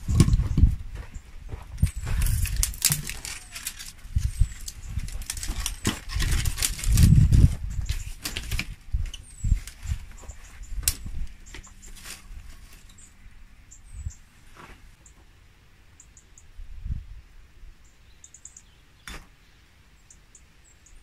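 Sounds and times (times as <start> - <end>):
dry twigs rustling: 0.0 - 13.3
twigs knocking on stone: 2.2 - 4.0.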